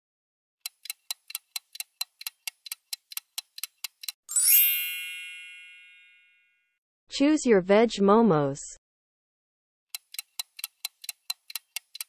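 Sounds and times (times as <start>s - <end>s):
clock ticking: 0.6s - 4.2s, 9.9s - 12.0s
bell-like chime: 4.3s - 6.8s.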